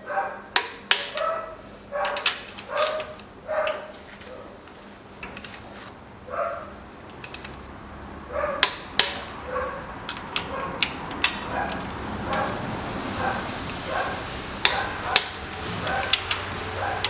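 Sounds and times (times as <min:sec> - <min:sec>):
dog barking: 0:00.0 - 0:04.6, 0:06.3 - 0:06.7, 0:08.3 - 0:08.7, 0:09.4 - 0:10.8, 0:11.4 - 0:17.0
socket wrench clicking: 0:00.6 - 0:01.3, 0:07.1 - 0:07.6, 0:08.6 - 0:09.3, 0:10.0 - 0:12.5, 0:14.6 - 0:15.4, 0:16.0 - 0:16.5.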